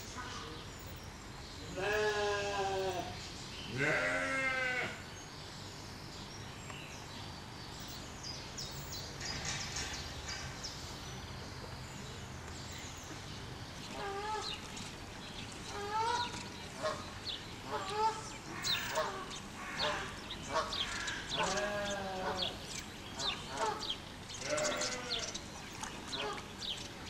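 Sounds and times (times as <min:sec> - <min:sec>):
background noise: 0:00.0 - 0:27.0
goat bleating: 0:01.8 - 0:03.0, 0:03.8 - 0:04.9.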